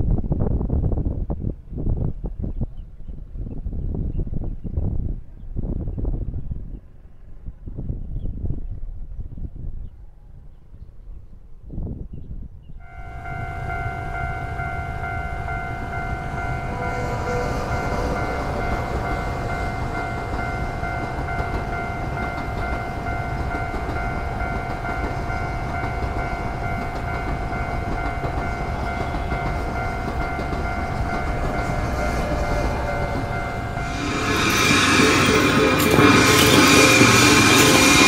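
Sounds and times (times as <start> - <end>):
level crossing bell ringing: 12.8 - 38.0
train rumbling: 12.8 - 38.0.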